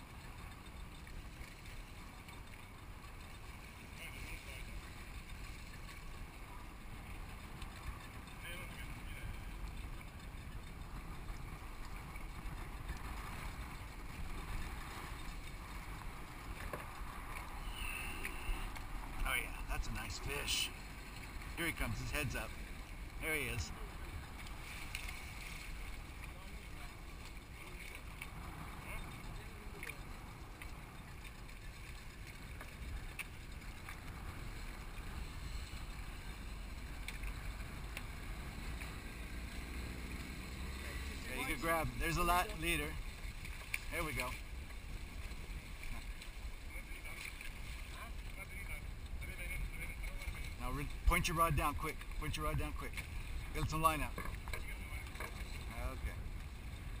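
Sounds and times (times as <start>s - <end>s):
faint ticks: 0.0s - 19.3s, 24.1s - 40.8s
water washing around boat: 0.0s - 57.0s
wind rumbling on microphone: 0.0s - 57.0s
wind rumble on microphone: 41.3s - 57.0s.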